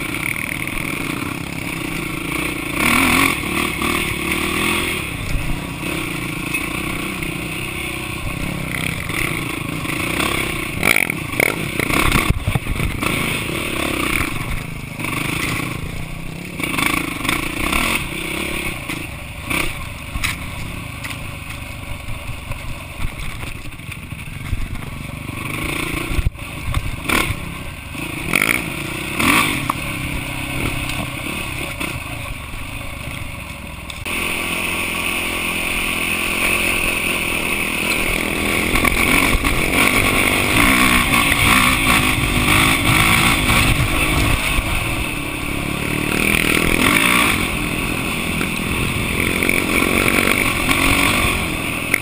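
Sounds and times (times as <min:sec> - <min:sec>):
dirt bike engine running: 0:00.0 - 0:52.0.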